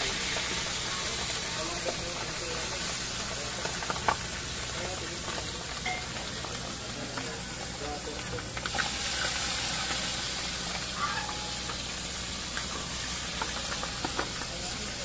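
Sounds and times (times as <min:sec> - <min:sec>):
meat sizzling in hot oil: 0:00.0 - 0:15.0
metal spatula scraping wok: 0:10.9 - 0:12.0.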